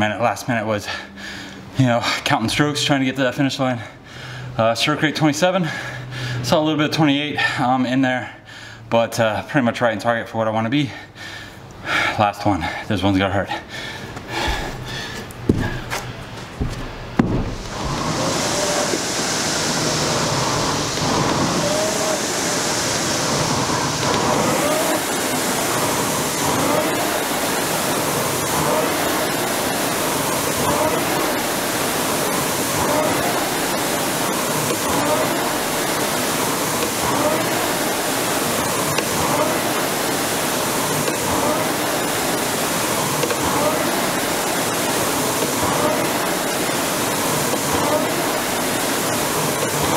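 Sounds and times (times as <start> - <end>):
rowing machine flywheel whooshing: 16.7 - 49.9.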